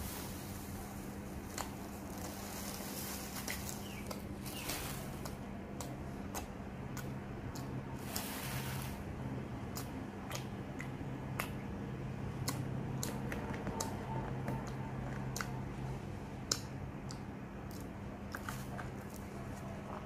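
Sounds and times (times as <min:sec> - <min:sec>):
crunching crispy food: 0:00.0 - 0:09.1
steady low hum: 0:00.0 - 0:20.0.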